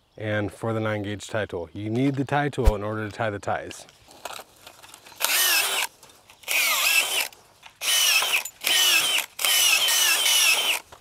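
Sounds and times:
cordless drill spinning: 5.0 - 11.0.

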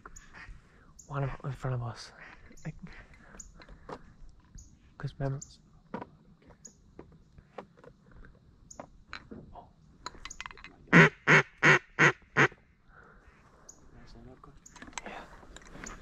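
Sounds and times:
duck call quacks: 10.9 - 12.6.

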